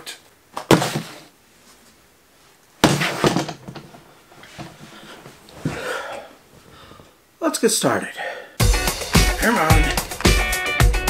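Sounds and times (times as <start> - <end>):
loud thumps: 2.8 - 3.8.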